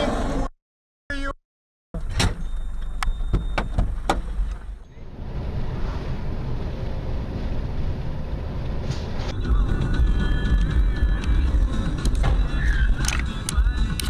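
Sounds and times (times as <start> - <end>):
car interior driving rumble: 2.0 - 14.0
sharp clicks: 13.0 - 14.0.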